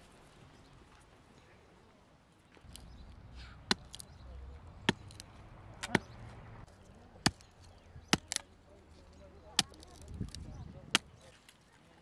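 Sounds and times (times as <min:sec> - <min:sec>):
hatchet chopping wood: 0:03.7 - 0:04.1, 0:04.8 - 0:06.1, 0:07.2 - 0:08.5, 0:09.6 - 0:11.2.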